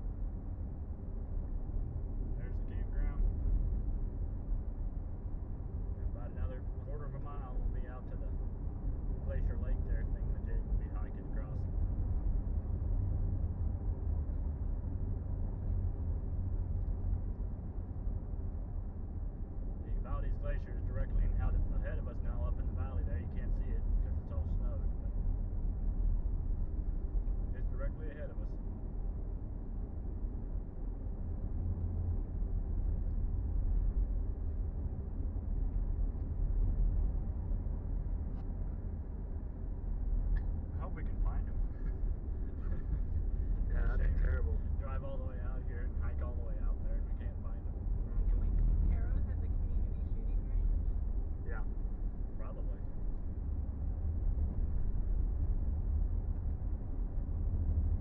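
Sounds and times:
vehicle engine rumble: 0:00.0 - 0:58.0.

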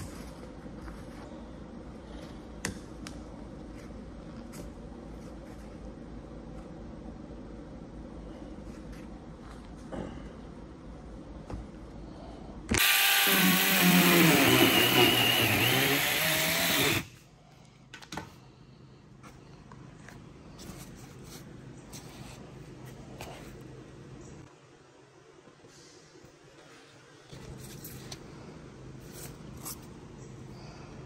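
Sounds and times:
power tool motor running: 0:12.7 - 0:17.1.

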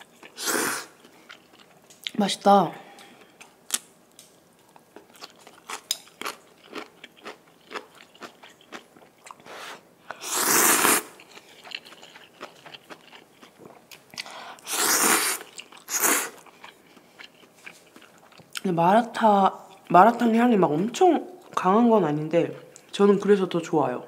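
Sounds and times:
wet chewing with mouth clicks: 0:00.0 - 0:02.2, 0:02.9 - 0:18.7
noodle slurps: 0:00.3 - 0:01.0, 0:09.4 - 0:11.2, 0:14.7 - 0:16.4.

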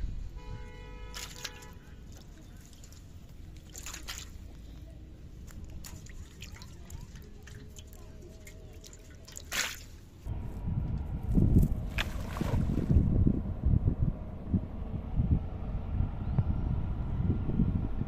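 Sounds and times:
fish splashing in water: 0:01.1 - 0:04.5, 0:05.7 - 0:10.2, 0:11.9 - 0:13.0
wind rumble on microphone: 0:10.2 - 0:18.0.

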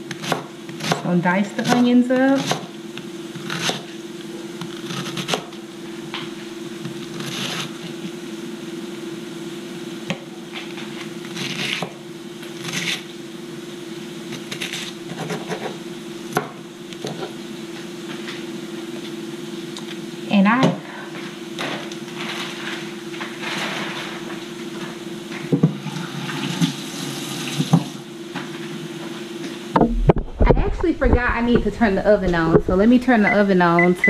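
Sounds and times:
steady hum: 0:00.0 - 0:34.0
crunchy onion slicing: 0:01.7 - 0:04.0, 0:04.6 - 0:05.6, 0:06.2 - 0:08.2, 0:10.1 - 0:13.2, 0:14.3 - 0:17.3.

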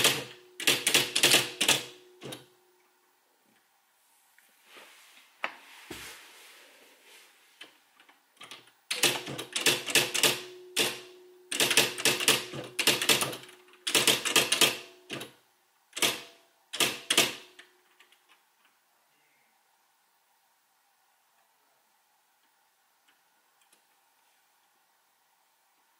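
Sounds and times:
typewriter printing strikes: 0:00.0 - 0:02.4, 0:08.4 - 0:15.3, 0:16.0 - 0:17.6.

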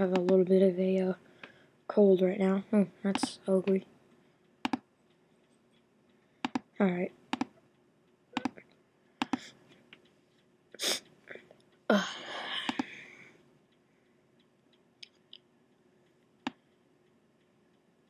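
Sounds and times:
computer mouse clicks: 0:00.0 - 0:00.4, 0:03.1 - 0:10.5, 0:12.7 - 0:13.0, 0:14.4 - 0:17.9.

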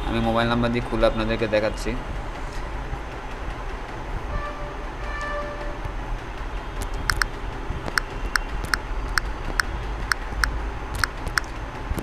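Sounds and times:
phone keypad clicks: 0:06.8 - 0:07.3, 0:11.0 - 0:11.5.

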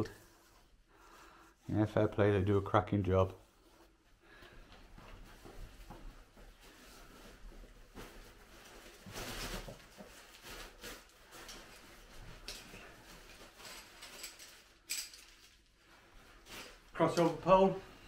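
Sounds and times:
tent fabric rustling: 0:04.8 - 0:14.8, 0:15.6 - 0:17.8.

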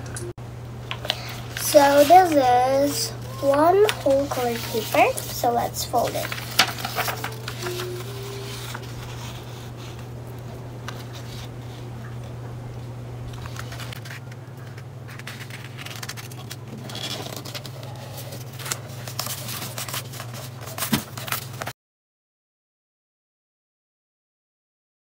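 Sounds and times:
steady low hum: 0:00.0 - 0:21.7
paper rustling and crackling: 0:00.9 - 0:10.1, 0:10.8 - 0:12.3, 0:13.3 - 0:21.7.

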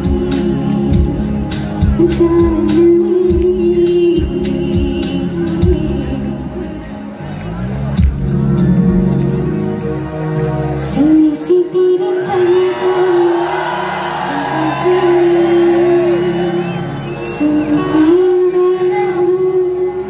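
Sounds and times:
woman singing: 0:00.0 - 0:07.1, 0:10.8 - 0:20.0
live band music: 0:00.0 - 0:12.3
crowd cheering: 0:12.2 - 0:18.7.

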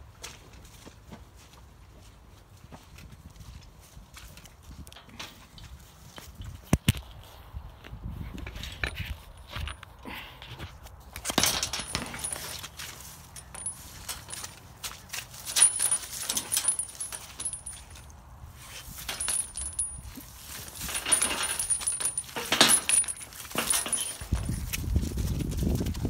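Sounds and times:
light metallic clinks: 0:11.4 - 0:14.7, 0:15.4 - 0:18.2, 0:19.0 - 0:24.6.

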